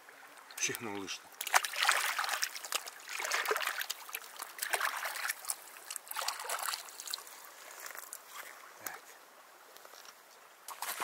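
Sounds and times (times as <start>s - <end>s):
river water splashing over stones: 0.2s - 8.3s, 10.6s - 11.0s.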